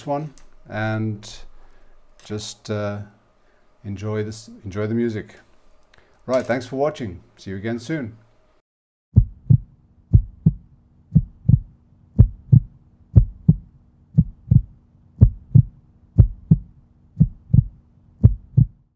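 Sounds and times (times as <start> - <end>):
heartbeat-like double thumps: 9.2 - 18.9.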